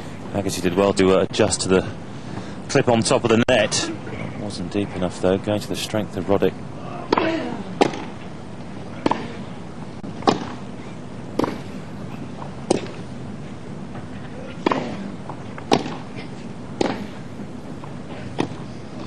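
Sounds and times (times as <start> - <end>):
steady background noise: 0.0 - 19.0
tennis ball hit by rackets: 7.1 - 8.2, 9.0 - 9.4, 10.2 - 10.7, 11.3 - 11.8, 12.4 - 13.0, 14.5 - 19.0.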